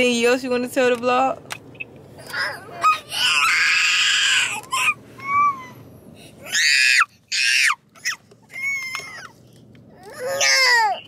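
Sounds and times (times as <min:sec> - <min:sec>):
toddler screaming and crying: 0:02.3 - 0:05.8, 0:06.4 - 0:09.3, 0:10.0 - 0:11.0.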